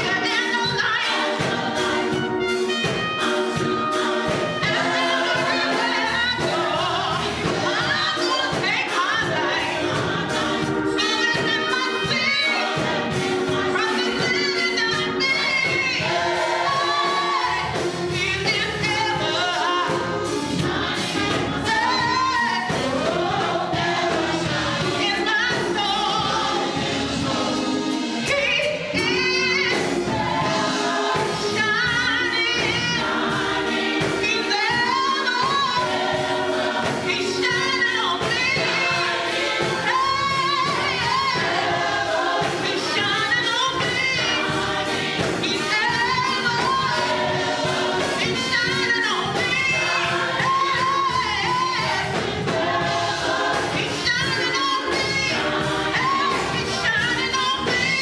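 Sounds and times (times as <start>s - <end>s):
trumpet: 0.0s - 26.6s
drum kit: 0.0s - 58.0s
gospel choir singing: 0.0s - 58.0s
keyboard: 0.0s - 58.0s.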